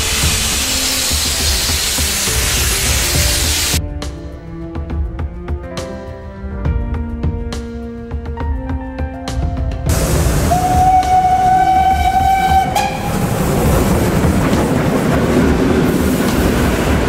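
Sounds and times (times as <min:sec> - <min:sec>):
steam locomotive exhaust and running gear: 0:00.0 - 0:03.8, 0:09.9 - 0:17.0
steam locomotive whistle: 0:10.0 - 0:13.4.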